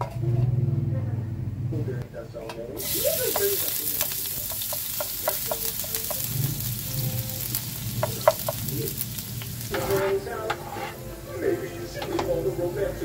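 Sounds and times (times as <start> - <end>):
garlic sizzling in hot oil: 2.8 - 13.0.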